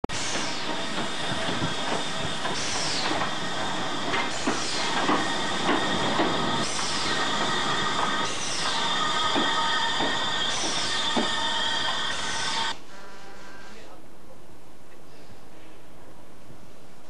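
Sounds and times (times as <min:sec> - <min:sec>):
high steady squeal: 0:00.1 - 0:12.8
steam locomotive hiss: 0:00.1 - 0:13.8
wheels clicking over rails: 0:00.6 - 0:12.7.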